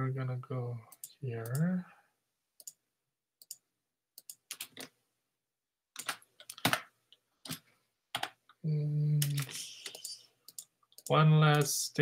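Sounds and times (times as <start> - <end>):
typing on computer keyboard: 4.2 - 4.9, 6.0 - 6.8, 7.4 - 8.4.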